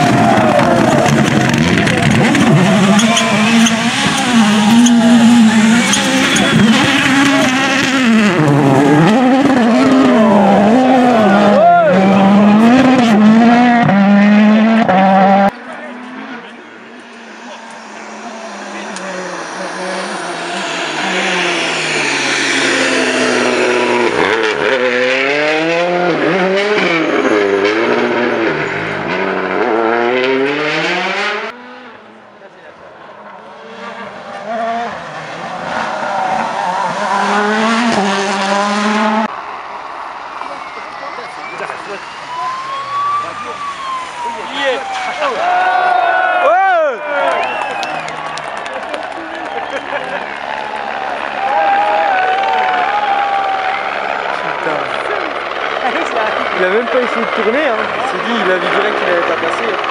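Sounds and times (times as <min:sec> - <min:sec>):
rally car engine revving past: 0:00.0 - 0:32.2, 0:33.1 - 0:39.3.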